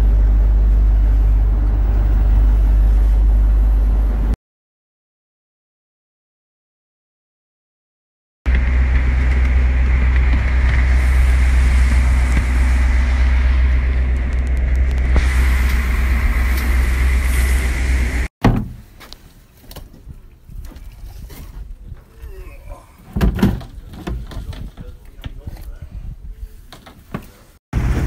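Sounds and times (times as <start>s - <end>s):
boat engine humming: 0.0s - 4.4s, 8.5s - 18.3s
knocks and clatter: 23.1s - 25.4s.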